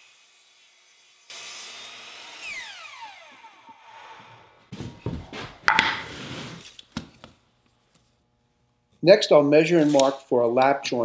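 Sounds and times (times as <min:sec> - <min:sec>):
miter saw cutting wood: 0:00.0 - 0:04.7
saw blade winding down: 0:01.3 - 0:04.5
wooden blanks knocking on workbench: 0:05.1 - 0:06.1.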